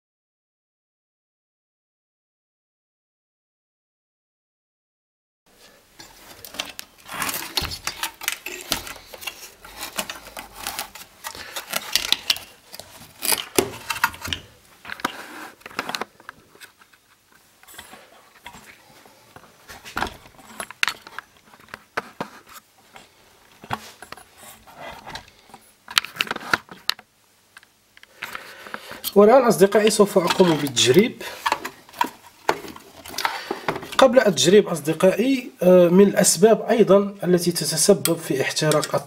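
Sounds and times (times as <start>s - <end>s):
clicks and rustles of plastic and wire: 5.6s - 34.3s, 38.0s - 39.0s.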